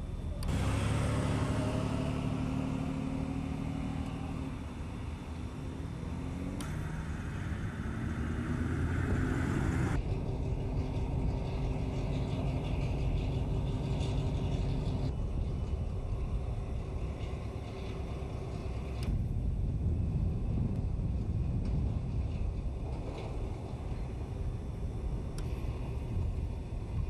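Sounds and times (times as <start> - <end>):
locomotive engines droning: 0.0 - 27.0.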